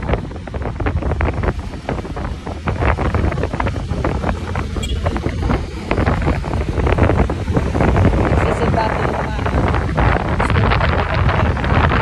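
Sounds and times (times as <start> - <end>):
road and engine noise: 0.0 - 12.0
wind buffeting the microphone: 0.0 - 12.0.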